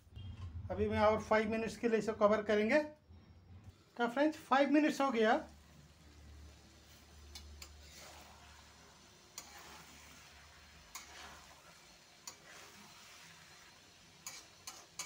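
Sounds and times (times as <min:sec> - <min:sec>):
spatula scraping food in pan: 0:06.8 - 0:15.0.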